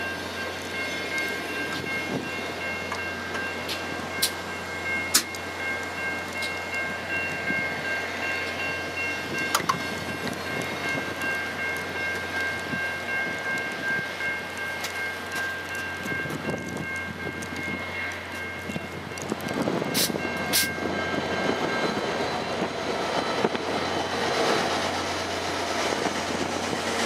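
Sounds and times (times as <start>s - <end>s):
train wheels rumbling on rails: 0.0s - 27.0s
sharp rail clicks: 2.9s - 4.4s, 5.1s - 6.8s, 9.4s - 12.7s.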